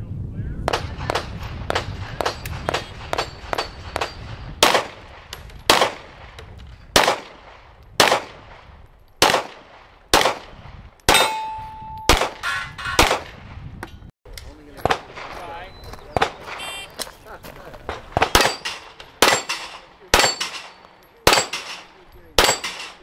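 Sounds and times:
pistol shots: 0:00.7 - 0:06.4, 0:07.0 - 0:08.6, 0:09.2 - 0:13.4, 0:17.9 - 0:23.0.

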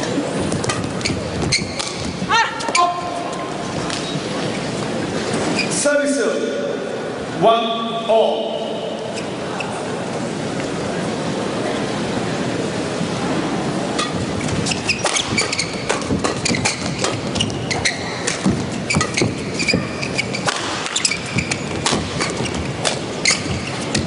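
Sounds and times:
shoes squeaking on court: 0:00.0 - 0:05.8, 0:09.0 - 0:10.0, 0:13.8 - 0:24.0
murmur in hall: 0:00.0 - 0:24.0
rackets striking shuttlecock: 0:00.5 - 0:02.8, 0:13.9 - 0:24.0.

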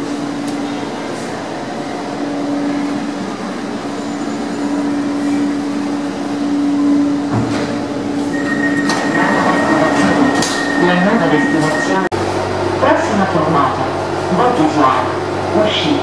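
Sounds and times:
train electrical hum: 0:00.0 - 0:16.0
steady high beep: 0:08.3 - 0:12.1.

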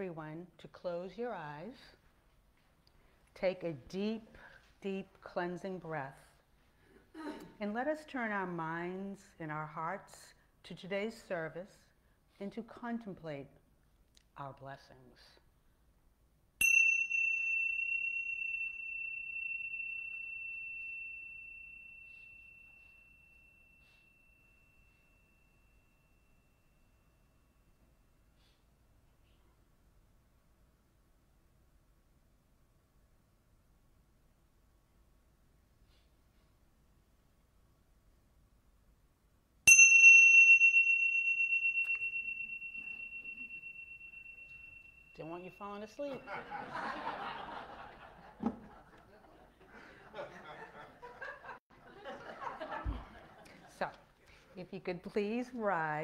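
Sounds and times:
small cymbals struck together: 0:16.6 - 0:24.1, 0:39.7 - 0:45.7
small metal chime ringing: 0:16.6 - 0:27.8, 0:39.7 - 0:47.8.

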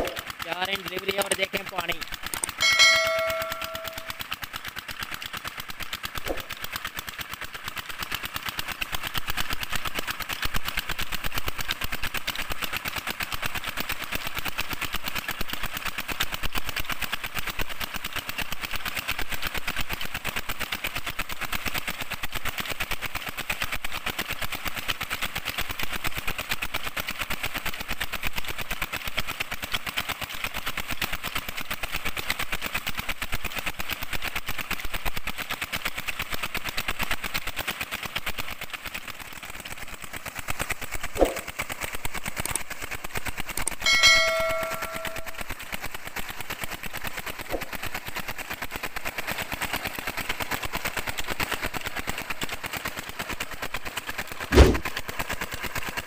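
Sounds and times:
diesel engine knocking: 0:00.0 - 0:56.0.

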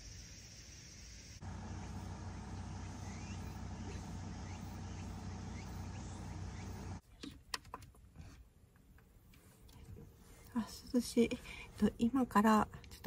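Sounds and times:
faint rising chirps: 0:00.0 - 0:07.0
low even hum: 0:01.4 - 0:07.0.

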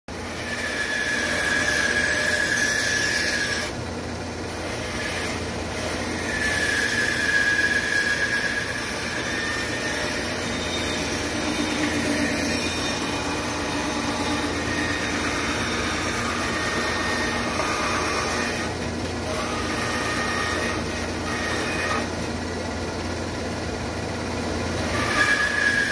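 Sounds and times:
bandsaw cutting wood: 0:00.1 - 0:22.5, 0:24.6 - 0:25.9
high whine: 0:05.4 - 0:22.6.

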